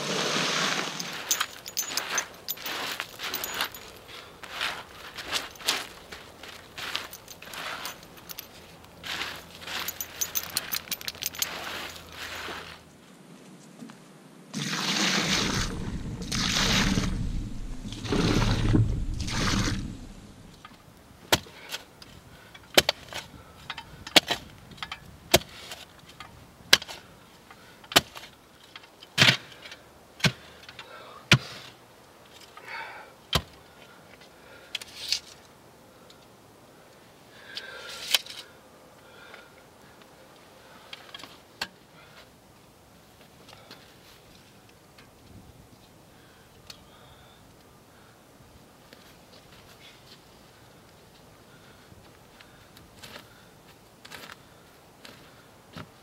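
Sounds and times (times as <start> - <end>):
post hole digger striking soil: 14.6 - 20.7, 22.7 - 23.3, 25.3 - 25.8.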